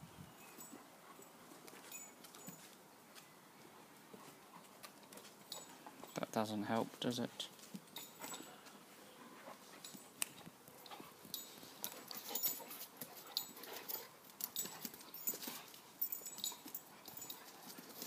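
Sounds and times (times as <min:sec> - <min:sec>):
pet scuffling: 0:07.5 - 0:18.0.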